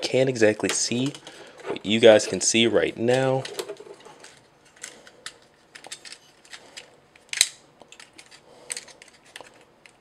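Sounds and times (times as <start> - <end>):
plastic toy parts clicking: 3.4 - 10.0.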